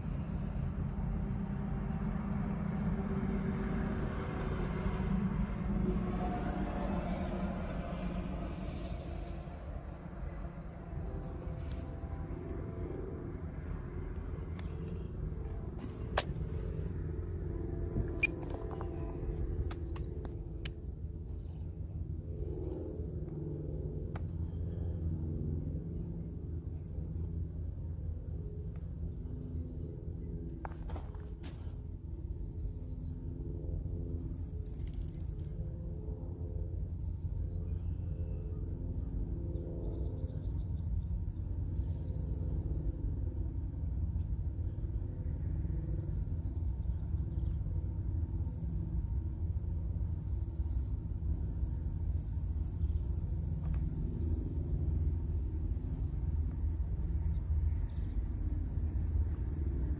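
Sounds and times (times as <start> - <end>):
freight train rumbling: 0.0 - 20.8
low rumble: 0.0 - 34.6, 35.2 - 59.9
wavering mechanical hum: 0.0 - 59.9.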